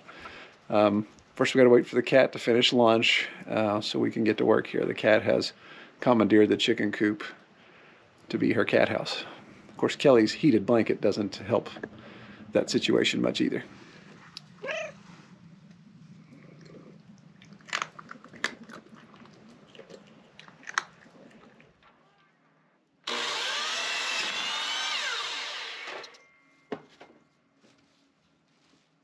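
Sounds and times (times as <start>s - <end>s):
cat crunching dry kibble: 15.4s - 21.9s
miter saw cutting a board: 23.0s - 26.2s.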